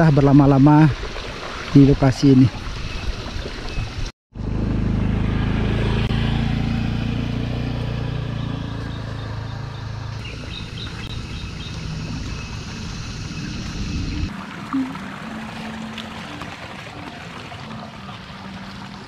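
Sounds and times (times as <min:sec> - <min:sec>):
motor scooter engine: 0:04.4 - 0:14.3.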